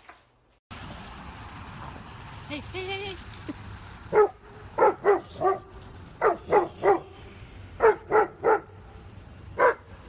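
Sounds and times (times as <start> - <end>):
dog barking sharply: 4.1 - 7.1, 7.8 - 8.7, 9.6 - 9.9.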